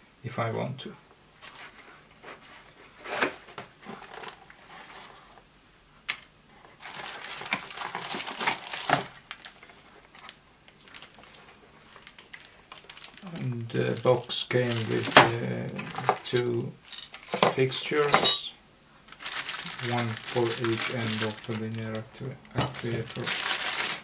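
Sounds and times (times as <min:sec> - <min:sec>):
cardboard rustling: 0:01.4 - 0:05.4, 0:06.5 - 0:16.3, 0:19.1 - 0:22.1, 0:22.7 - 0:24.0
plastic bag crinkling: 0:06.8 - 0:18.1, 0:19.0 - 0:24.0.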